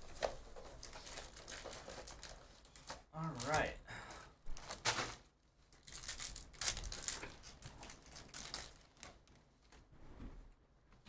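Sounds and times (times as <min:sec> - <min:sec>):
foil wrappers crinkling: 0:00.0 - 0:03.7, 0:04.5 - 0:09.4.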